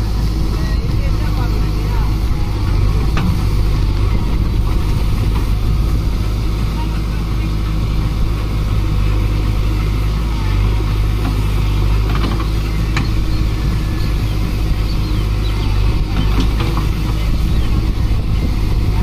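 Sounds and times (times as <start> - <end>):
diesel engine humming: 0.0 - 19.0.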